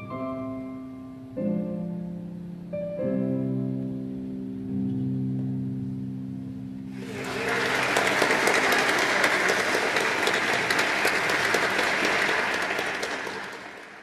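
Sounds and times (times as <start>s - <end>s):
audience applause: 7.0s - 14.0s.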